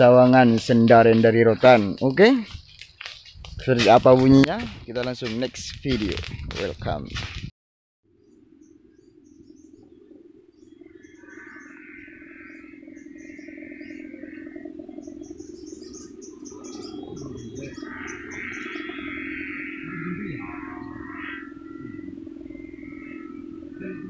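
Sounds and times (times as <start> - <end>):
birds chirping: 0.0 - 6.8, 8.1 - 24.0
kite hummer droning in wind: 8.2 - 24.0.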